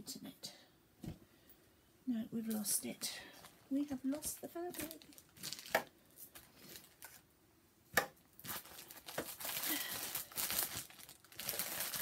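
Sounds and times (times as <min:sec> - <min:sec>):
rustling and crinkling: 0:02.4 - 0:07.3, 0:08.3 - 0:12.0.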